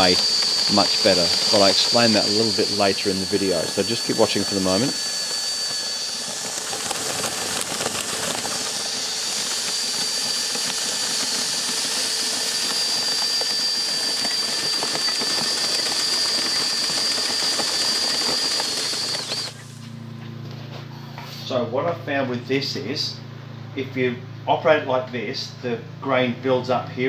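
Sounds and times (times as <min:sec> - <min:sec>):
grain rushing up a pipe: 0:00.0 - 0:19.6
cordless drill motor whine: 0:00.0 - 0:20.2.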